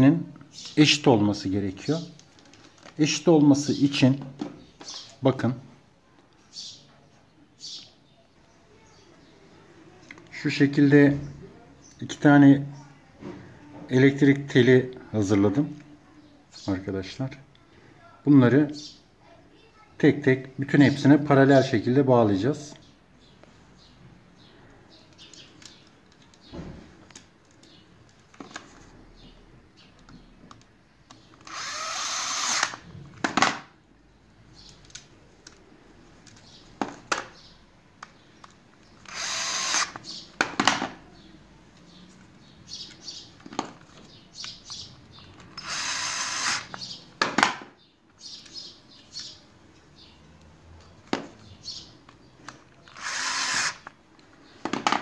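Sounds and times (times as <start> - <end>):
small handling clicks and knocks: 25.1 - 28.9, 29.8 - 31.5, 34.6 - 37.4, 38.0 - 39.1
cordless screwdriver whirring: 31.4 - 32.8, 39.0 - 40.2, 45.5 - 46.9, 52.9 - 53.9.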